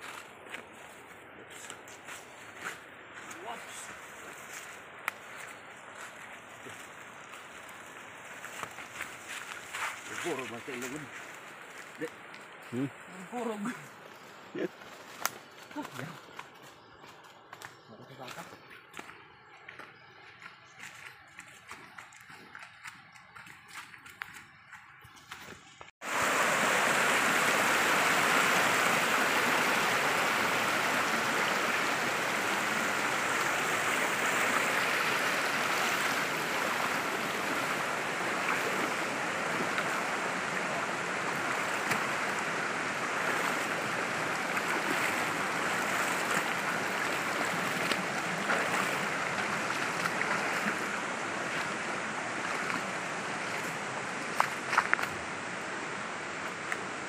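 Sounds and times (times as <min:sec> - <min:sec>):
stream rushing over rocks: 0:26.0 - 0:57.0.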